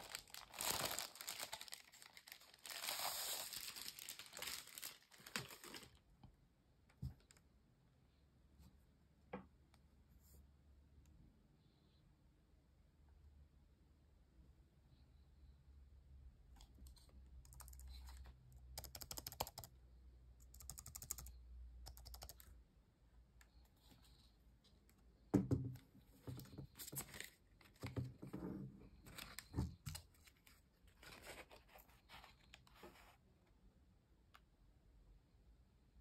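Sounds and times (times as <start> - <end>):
plastic knocking on wooden desk: 25.3 - 25.8.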